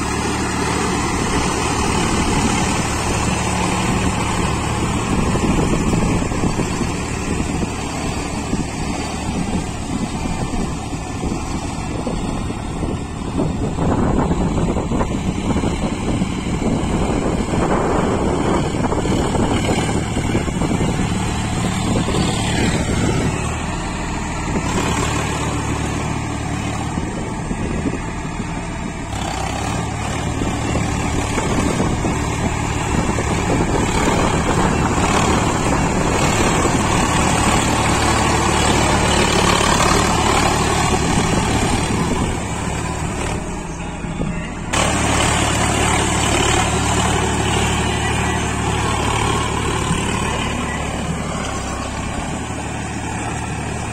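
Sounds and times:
tractor diesel engine running: 0.0 - 53.9.

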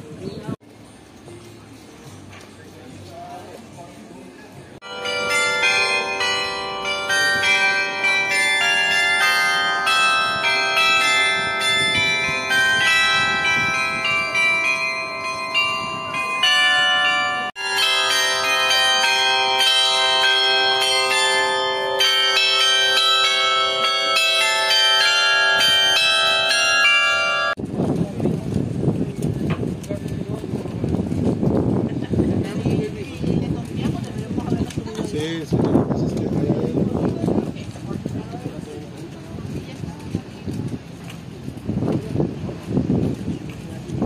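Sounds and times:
carillon bells playing a tune: 4.8 - 27.6.

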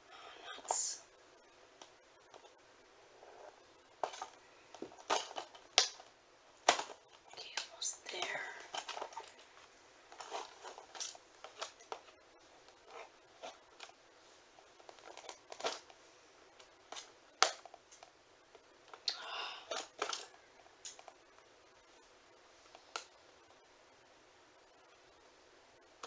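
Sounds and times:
plastic snapping: 4.0 - 7.7
plastic packaging crinkling: 4.0 - 14.0, 14.6 - 15.9.

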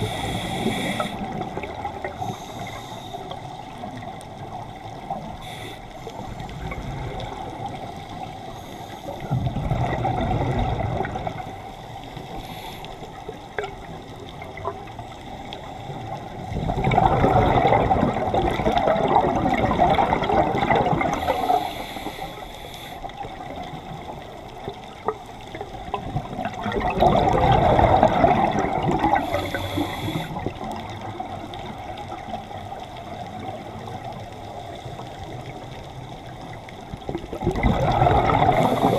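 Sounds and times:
regulator inhalation hiss: 0.0 - 1.4, 2.2 - 3.6, 5.3 - 6.4, 8.5 - 9.3, 12.1 - 13.2, 21.2 - 23.1, 29.2 - 30.5, 38.6 - 38.9
exhaled bubbles rushing underwater: 0.0 - 22.3, 23.0 - 38.9.

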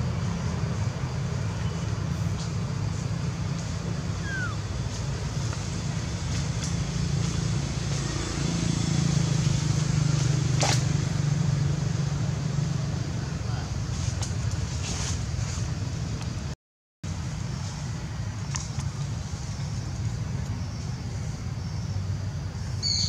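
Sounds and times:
faint falling chirp: 4.2 - 4.7.

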